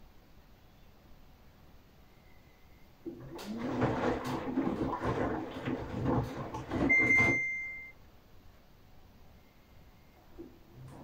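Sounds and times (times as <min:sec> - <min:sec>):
washing machine drum tumbling laundry: 0:03.0 - 0:07.7, 0:10.3 - 0:11.0
washing machine beep: 0:06.3 - 0:08.0.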